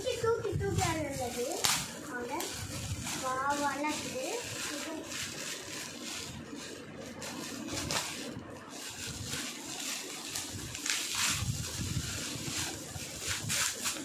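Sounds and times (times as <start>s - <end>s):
foil gift wrap crinkling: 0.0s - 14.0s.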